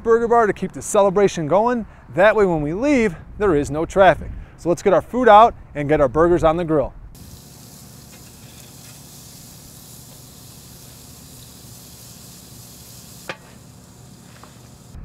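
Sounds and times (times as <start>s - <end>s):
burger patties sizzling on a grill: 7.2s - 15.0s
grill lid shutting click: 13.2s - 13.6s.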